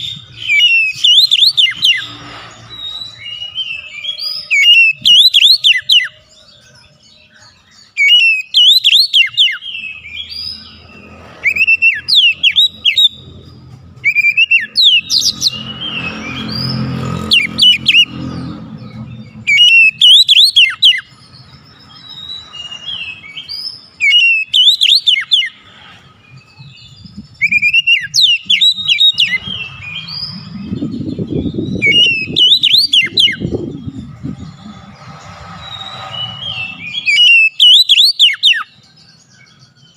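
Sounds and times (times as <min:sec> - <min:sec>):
bird singing whistled phrases: 0:00.0 - 0:06.2, 0:07.2 - 0:10.7, 0:11.4 - 0:13.3, 0:14.0 - 0:16.7, 0:19.4 - 0:25.6, 0:26.6 - 0:34.2, 0:35.6 - 0:38.8.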